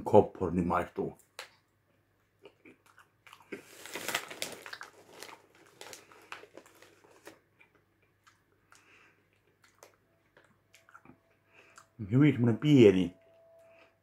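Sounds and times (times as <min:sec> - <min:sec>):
popcorn crunching: 0:02.4 - 0:11.9
snack bag rustling: 0:02.9 - 0:11.1.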